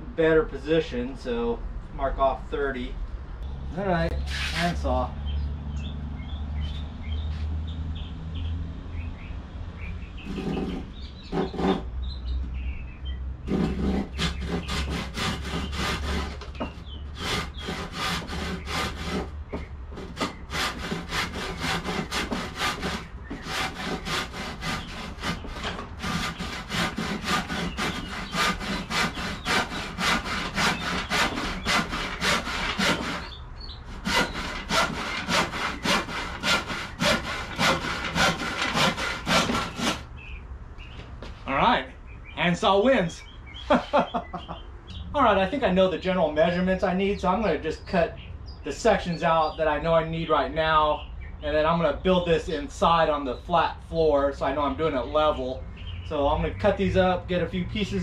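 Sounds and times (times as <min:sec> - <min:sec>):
handsaw cutting wood: 0:04.1 - 0:05.0, 0:10.2 - 0:11.8, 0:13.4 - 0:19.3, 0:20.0 - 0:40.0.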